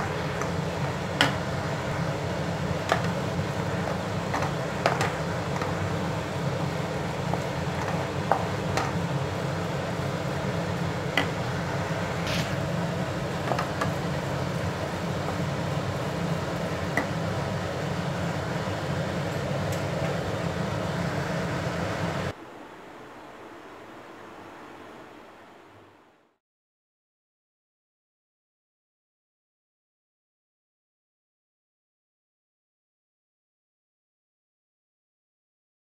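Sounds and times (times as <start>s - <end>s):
steady low hum: 0.0s - 26.4s.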